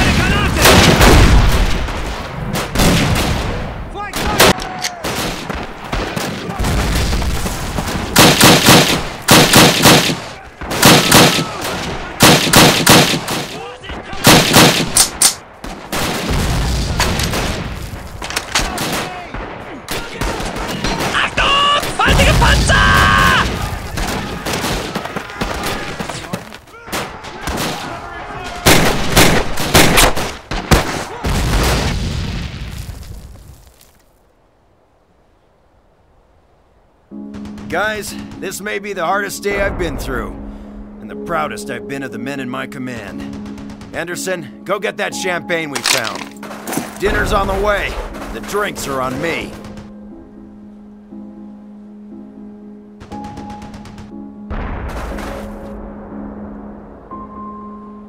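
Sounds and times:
gunshots: 0:00.0 - 0:32.0, 0:43.2 - 0:44.0
automatic gunfire bursts: 0:08.2 - 0:10.2, 0:10.8 - 0:11.4, 0:12.2 - 0:13.4.

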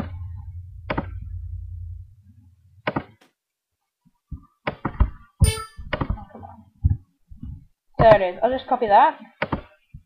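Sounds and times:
low steady hum: 0:00.0 - 0:03.2.

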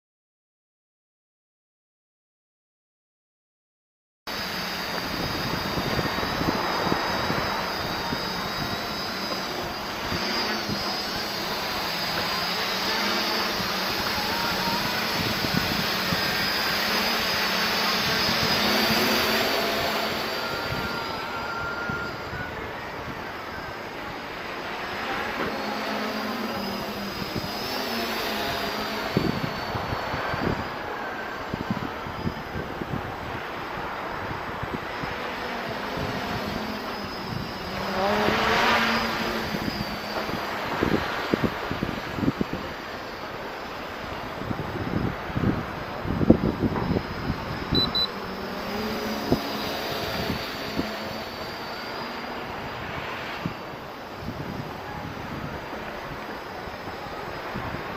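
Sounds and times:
quadcopter propellers whining: 0:04.3 - 0:57.9
wind thumping on microphone: 0:44.4 - 0:47.8.

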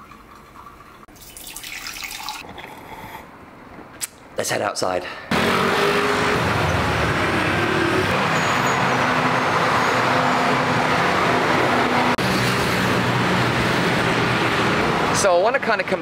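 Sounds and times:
road noise: 0:02.4 - 0:16.0
vehicle engines humming: 0:05.3 - 0:16.0.

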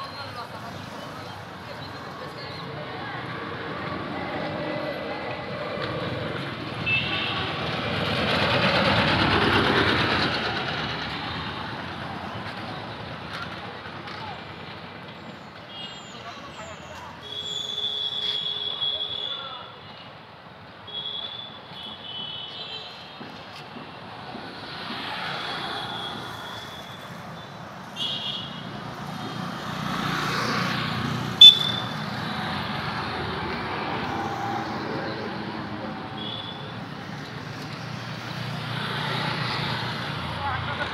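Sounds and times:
passing motor vehicle: 0:00.0 - 0:14.8, 0:28.6 - 0:40.9
road traffic: 0:00.0 - 0:40.9
high-pitched horn toots: 0:31.4 - 0:32.0.

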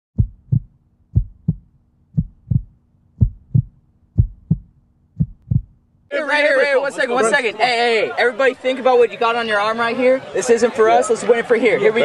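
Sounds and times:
heartbeat thumps: 0:00.2 - 0:05.8.

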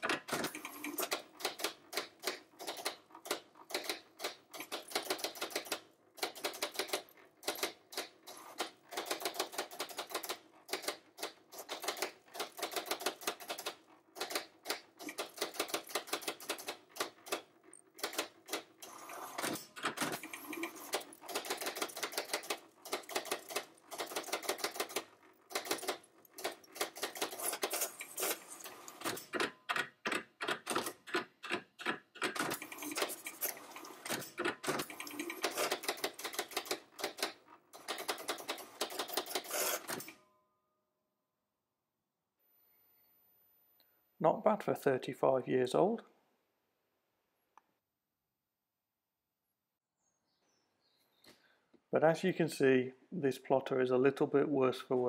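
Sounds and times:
pen plotter clicking and whirring: 0:00.0 - 0:40.2.

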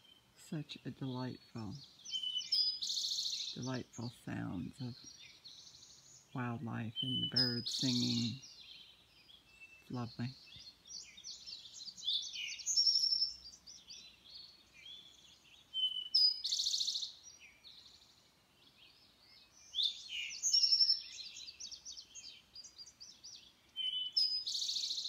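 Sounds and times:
songbirds singing and chirping: 0:00.0 - 0:25.0.

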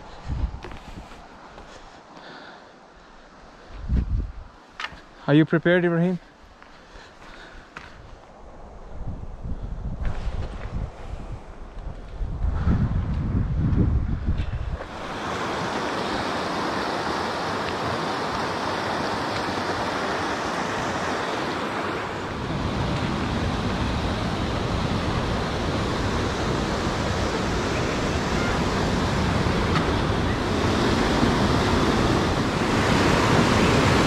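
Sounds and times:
creek and waterfall over rocks: 0:14.8 - 0:22.4.

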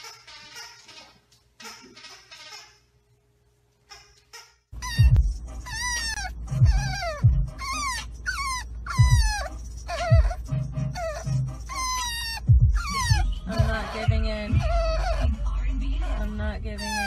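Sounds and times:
puppy whining: 0:04.8 - 0:15.5, 0:16.1 - 0:17.0.

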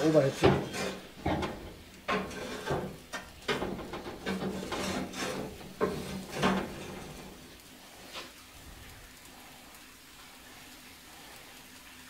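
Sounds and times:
metal grill grate scraping: 0:00.0 - 0:08.3.

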